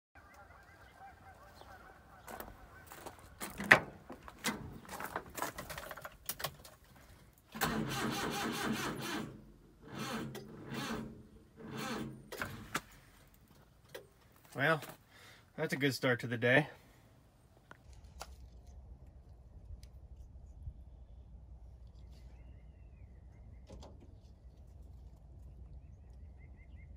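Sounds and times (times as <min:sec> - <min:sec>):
starter motor cranking: 0:07.5 - 0:13.0.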